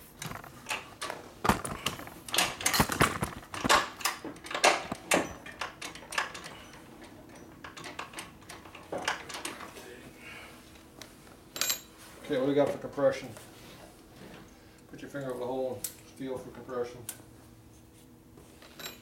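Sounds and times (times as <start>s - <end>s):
metallic clicks and clanks of tools: 0.2s - 9.7s, 11.6s - 11.9s, 18.6s - 19.0s.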